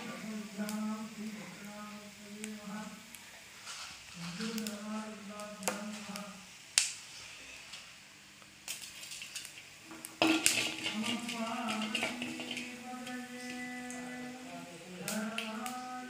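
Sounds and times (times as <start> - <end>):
person chanting: 0.0 - 3.1, 4.2 - 6.5, 10.7 - 16.0
crackling hiss: 0.0 - 16.0
utensil clinking on pot: 10.0 - 13.6.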